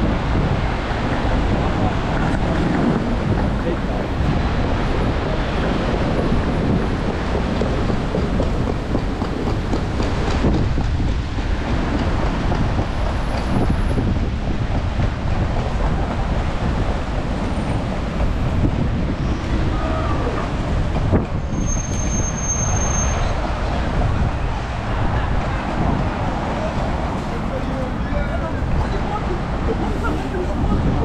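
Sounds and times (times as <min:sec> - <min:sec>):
city street traffic rumble: 0:00.0 - 0:31.0
high-pitched squeal: 0:21.4 - 0:23.4.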